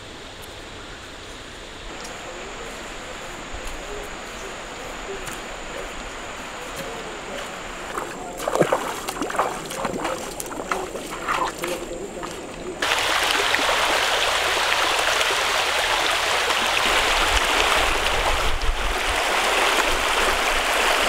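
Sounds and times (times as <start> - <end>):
river water running over stones: 1.8 - 21.0
splashing from wading feet: 4.8 - 21.0.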